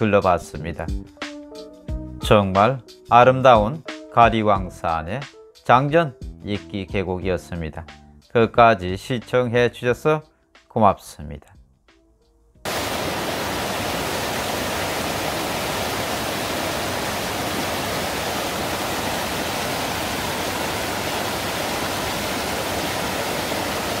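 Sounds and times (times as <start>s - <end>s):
waterfall rushing: 12.7s - 24.0s.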